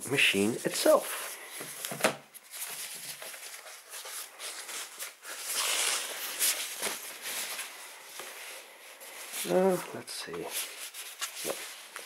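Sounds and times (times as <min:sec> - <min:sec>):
packaging wrap rustling and crinkling: 0:00.6 - 0:12.0.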